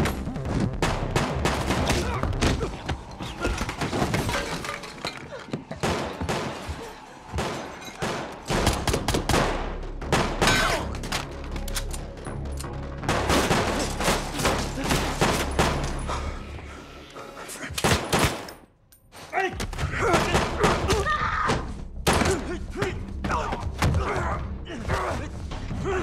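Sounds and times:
gunshots: 0:05.8 - 0:11.0, 0:13.0 - 0:16.0, 0:17.8 - 0:18.5.

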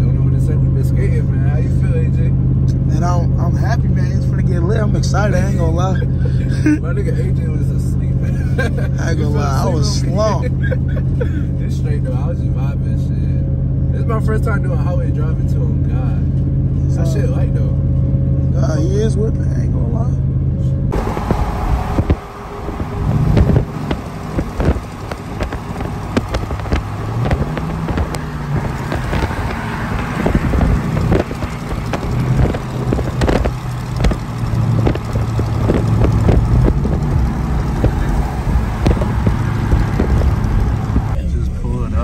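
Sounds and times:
engine humming: 0:00.0 - 0:42.0
road and tyre noise: 0:00.0 - 0:42.0
flapping thumps: 0:20.9 - 0:41.2
wind buffeting microphone: 0:20.9 - 0:41.2.

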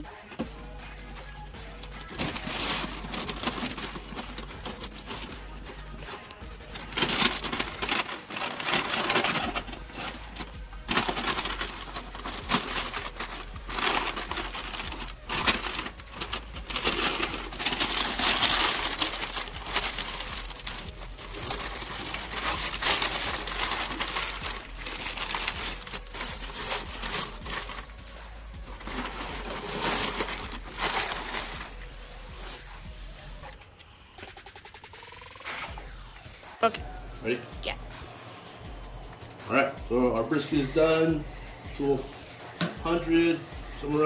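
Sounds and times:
paper crinkling and rustling: 0:01.9 - 0:05.4, 0:06.0 - 0:27.9, 0:28.6 - 0:32.6.

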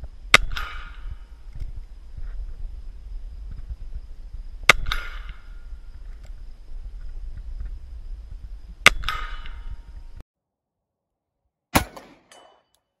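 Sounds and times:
wind rumble on microphone: 0:00.0 - 0:10.2
pistol shots: 0:11.7 - 0:12.6.

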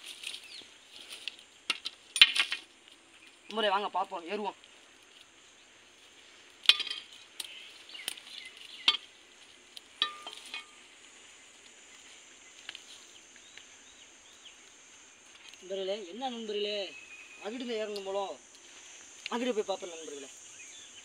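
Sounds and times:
footsteps through dry undergrowth: 0:00.0 - 0:03.6, 0:04.5 - 0:15.6
high drone of insects: 0:00.0 - 0:21.0.

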